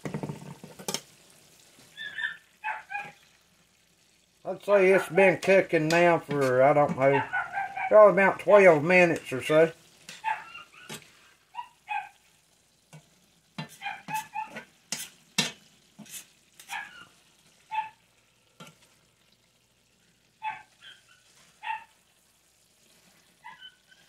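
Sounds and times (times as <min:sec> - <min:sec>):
spatula scraping in skillet: 0:00.0 - 0:17.7, 0:18.4 - 0:19.4, 0:20.1 - 0:24.0
dog barking: 0:02.0 - 0:03.2, 0:07.1 - 0:08.0, 0:10.2 - 0:12.2, 0:13.7 - 0:14.7, 0:16.6 - 0:17.1, 0:17.7 - 0:18.0, 0:20.4 - 0:22.0, 0:23.4 - 0:23.8.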